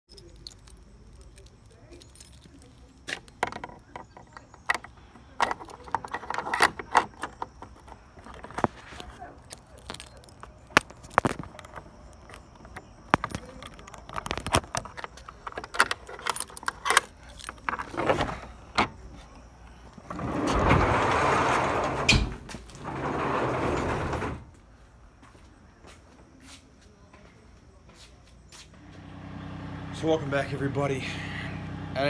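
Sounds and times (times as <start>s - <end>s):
keys jangling: 0.1s - 18.2s
padlock rattling against metal hasp: 0.1s - 19.1s
wooden doors scraping open: 17.6s - 19.0s, 20.0s - 24.6s.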